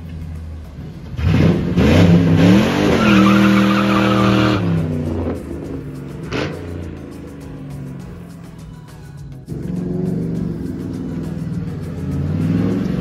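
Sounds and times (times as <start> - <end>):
car engine revving: 0.0 - 8.8, 9.5 - 13.0
tyres squealing: 1.2 - 6.6.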